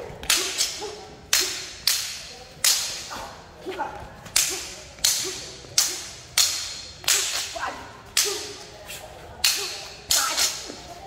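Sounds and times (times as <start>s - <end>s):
sword blades clashing: 0.2s - 3.3s, 4.3s - 8.7s, 9.4s - 10.8s.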